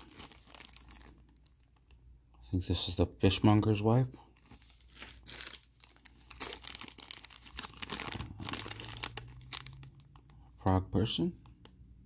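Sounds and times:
plastic bag crinkling: 0.0 - 2.0, 4.4 - 10.4.

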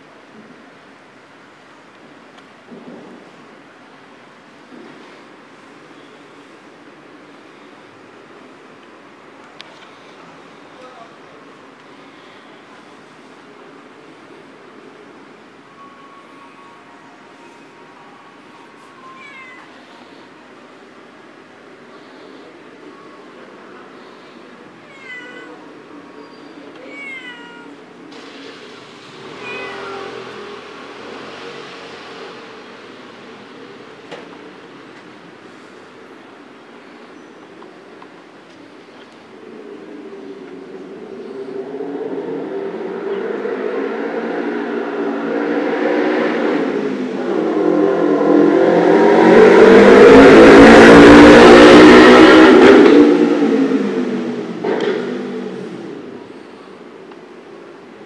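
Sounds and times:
cat meowing: 19.0 - 19.8, 24.8 - 25.7, 26.7 - 27.8, 29.3 - 30.4
motor vehicle passing: 28.1 - 35.7, 39.7 - 56.5.

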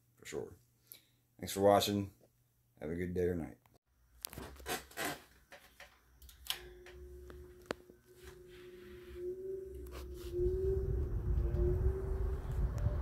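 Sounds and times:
fan motor humming: 6.2 - 13.0
rush of moving air: 9.9 - 13.0.

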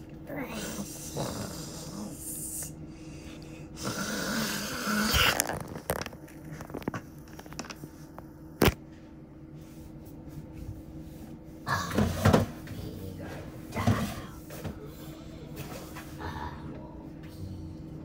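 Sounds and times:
person snoring: 0.4 - 2.7, 3.3 - 5.5.

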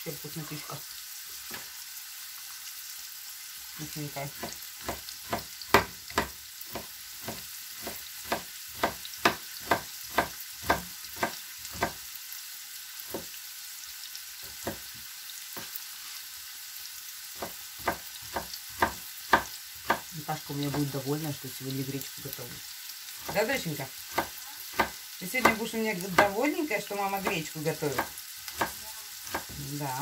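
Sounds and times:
knife chopping on plastic board: 4.4 - 12.0, 14.5 - 14.9, 17.4 - 20.1, 24.1 - 26.4, 27.2 - 29.6.

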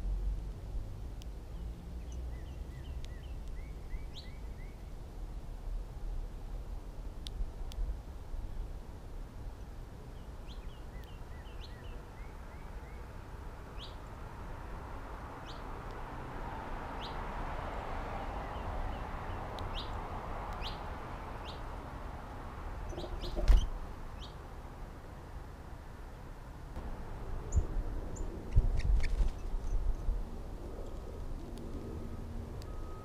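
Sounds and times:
small birds chirping: 1.2 - 5.0, 9.6 - 14.2, 15.3 - 16.0, 17.0 - 17.2, 18.4 - 21.8, 22.8 - 24.5, 27.5 - 30.1.

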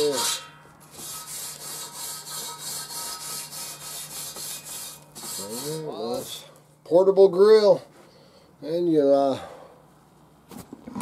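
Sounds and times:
wire brush scrubbing grill grate: 0.0 - 6.4.

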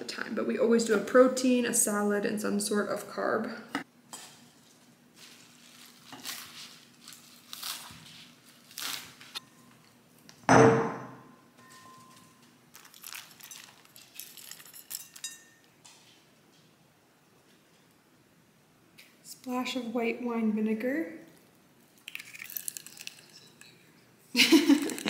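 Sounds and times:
knife cutting leafy greens: 5.2 - 9.4
loud knock with ring: 10.5 - 11.3.

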